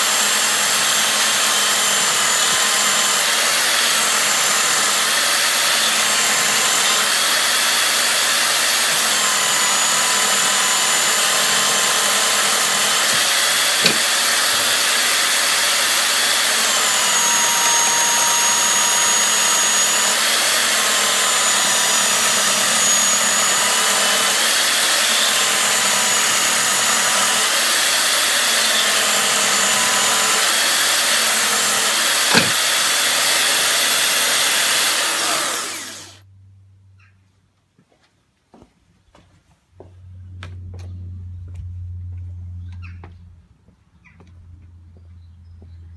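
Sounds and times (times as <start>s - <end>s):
belt sander motor whine: 0.0s - 36.2s
sharp knocks: 13.1s - 14.3s, 32.2s - 32.7s.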